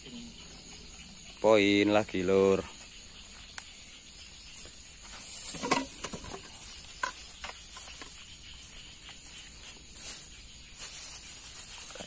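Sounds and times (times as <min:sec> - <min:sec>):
dry grass rustling: 0:02.9 - 0:12.0.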